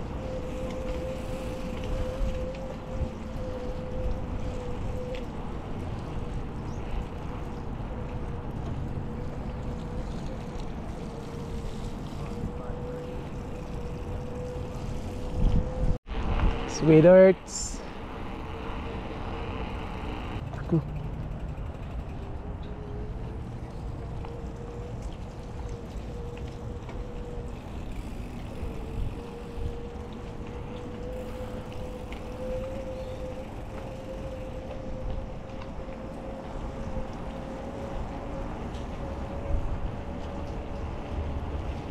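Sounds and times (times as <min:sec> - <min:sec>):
wind rushing over microphone: 0:00.0 - 0:20.4, 0:21.3 - 0:41.9
bike tyres rolling on wet pavement: 0:00.0 - 0:41.9
steady mid-pitched hum: 0:16.1 - 0:20.4.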